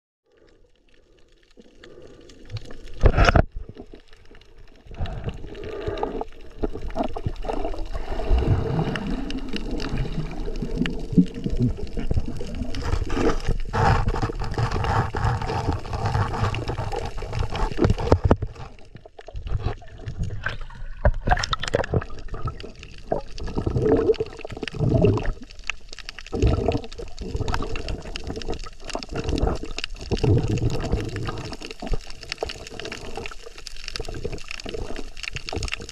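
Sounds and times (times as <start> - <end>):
muffled water sloshing underwater: 0.2 - 35.9.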